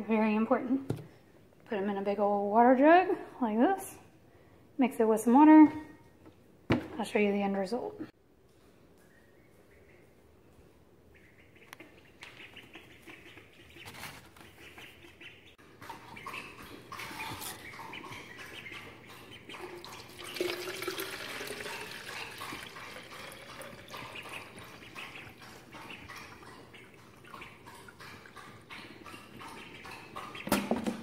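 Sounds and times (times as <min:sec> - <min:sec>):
ducklings peeping: 0:09.0 - 0:20.5, 0:21.6 - 0:30.7
liquid pouring into plastic bottle: 0:19.8 - 0:24.2.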